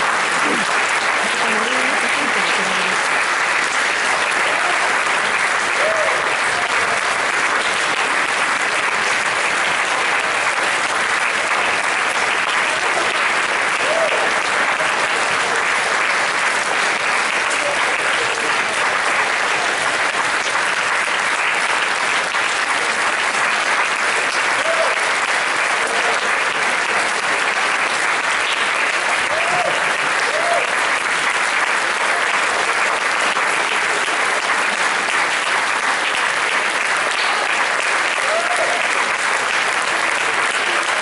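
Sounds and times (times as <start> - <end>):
audience applauding: 0.0 - 41.0.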